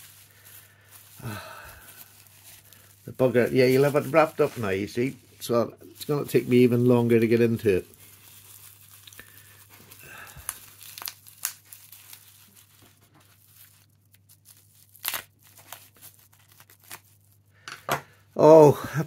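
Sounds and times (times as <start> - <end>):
bubble wrap crinkling: 0.0 - 17.6
bubble wrap clicks: 7.8 - 17.2.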